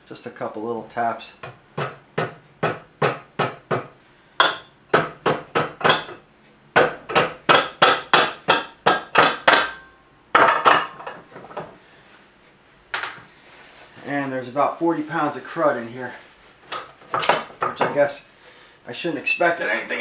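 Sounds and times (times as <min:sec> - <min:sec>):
rubber mallet tapping metal: 0:01.8 - 0:06.2, 0:06.8 - 0:11.0.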